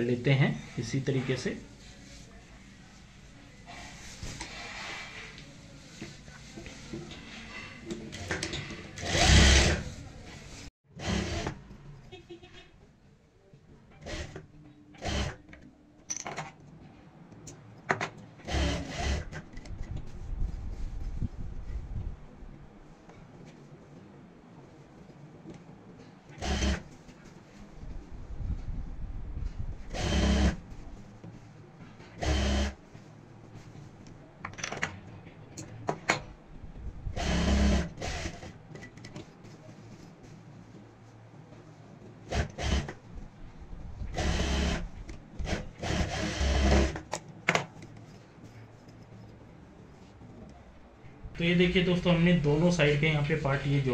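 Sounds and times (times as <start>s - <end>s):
sewing machine stitching: 8.2s - 9.9s, 11.0s - 11.6s, 15.0s - 15.4s, 18.4s - 19.4s, 26.4s - 26.9s, 29.9s - 30.6s, 32.2s - 32.8s, 37.2s - 38.5s, 42.3s - 43.0s, 44.1s - 47.0s
cloth rustling and rubbing: 20.1s - 21.9s.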